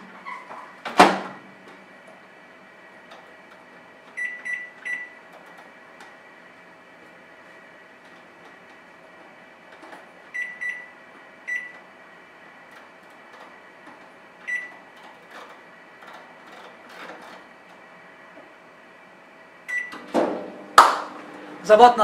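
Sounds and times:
microwave keypad beeps: 0:04.2 - 0:05.2, 0:10.3 - 0:11.8, 0:14.4 - 0:14.8, 0:19.7 - 0:20.0.

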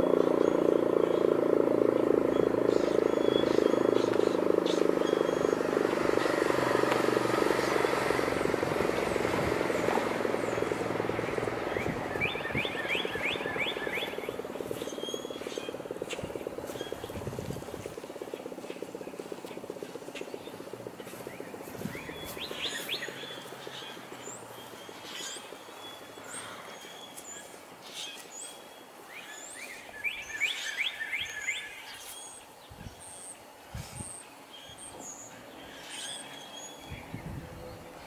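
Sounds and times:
warning siren winding down: 0:00.0 - 0:26.2
birds chirping: 0:00.0 - 0:38.0
bird trill: 0:02.0 - 0:06.6, 0:09.1 - 0:19.3, 0:20.0 - 0:32.4.

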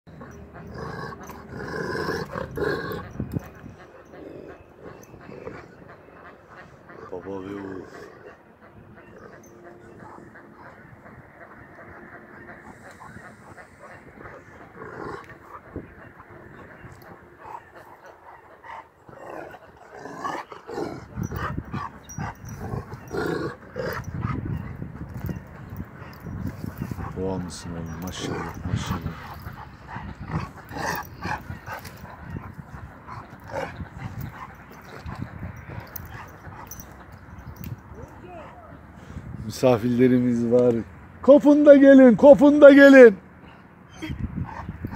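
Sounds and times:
dog growling: 0:00.2 - 0:06.0, 0:12.3 - 0:36.9.

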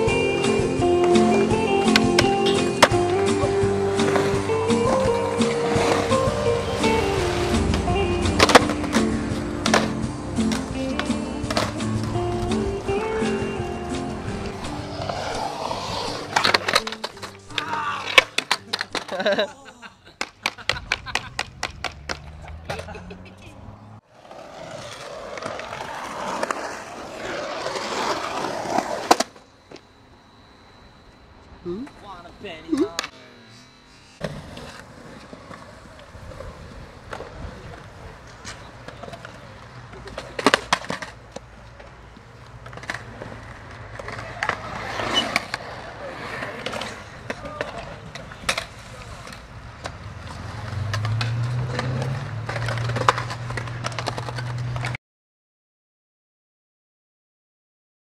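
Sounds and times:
skateboard clacks: 0:00.0 - 0:19.4, 0:20.2 - 0:23.0, 0:34.2 - 0:55.0
skateboard wheels rolling on concrete: 0:00.0 - 0:33.4, 0:34.0 - 0:55.0.

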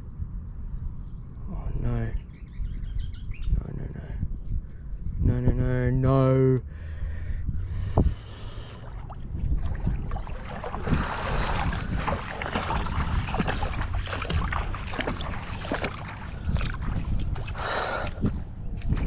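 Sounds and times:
wind buffeting microphone: 0:00.0 - 0:19.0
water splashing and lapping: 0:08.0 - 0:19.0.

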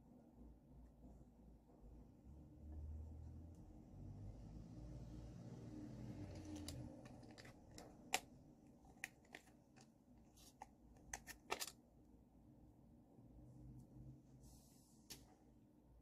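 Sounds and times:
handling clicks and rustles: 0:06.3 - 0:11.8.

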